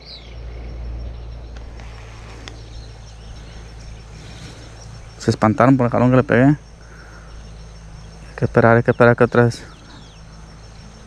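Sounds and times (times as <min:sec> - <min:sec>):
faint insect drone: 0:00.0 - 0:11.0
low steady rumble: 0:00.0 - 0:11.0
faint ticks: 0:01.5 - 0:02.8.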